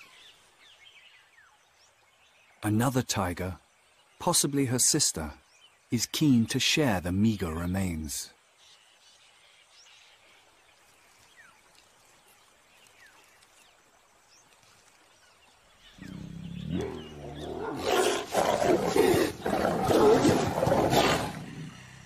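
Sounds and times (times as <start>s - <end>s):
tiger growling and snarling: 15.9s - 22.0s.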